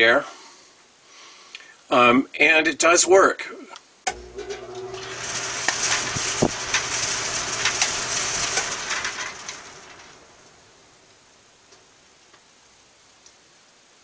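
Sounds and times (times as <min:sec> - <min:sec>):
vent flaps clicking and rattling: 0:04.1 - 0:12.0
low hum: 0:04.1 - 0:12.2
air rushing through vent: 0:04.1 - 0:12.3.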